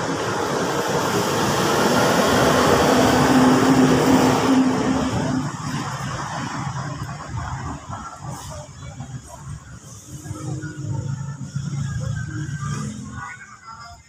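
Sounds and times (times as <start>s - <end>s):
vehicle passing by: 0.0s - 9.4s.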